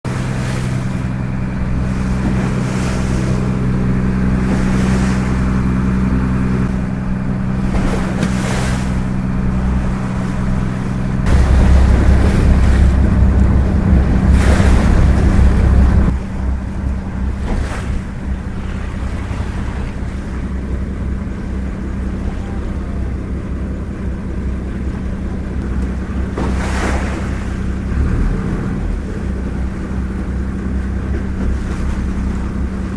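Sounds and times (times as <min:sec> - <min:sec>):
boat motor running: 0:00.0 - 0:32.9
water washing against hull: 0:00.0 - 0:32.9
wind buffeting microphone: 0:00.1 - 0:22.1.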